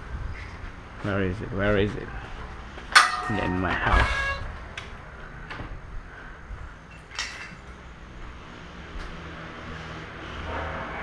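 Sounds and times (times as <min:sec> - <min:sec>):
house door opening: 0:03.2 - 0:04.6.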